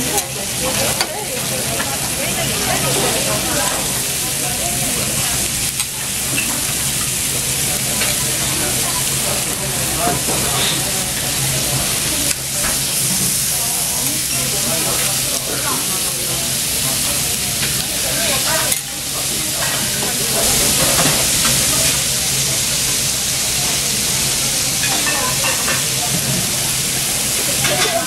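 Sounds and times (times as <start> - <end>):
steaks sizzling on a griddle: 0.0 - 28.0.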